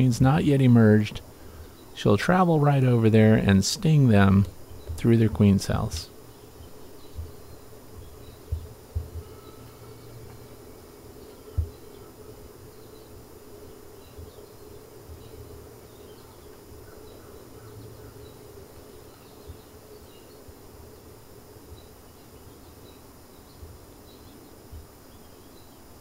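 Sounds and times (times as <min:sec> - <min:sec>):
bee colony humming: 0:00.0 - 0:26.0
faint high chirps: 0:01.4 - 0:20.6.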